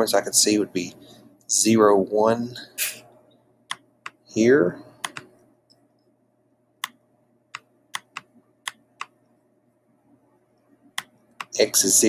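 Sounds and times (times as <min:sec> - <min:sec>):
faint steady hum: 0:00.0 - 0:12.0
computer mouse clicks: 0:05.0 - 0:06.1, 0:06.8 - 0:09.3, 0:11.0 - 0:11.6.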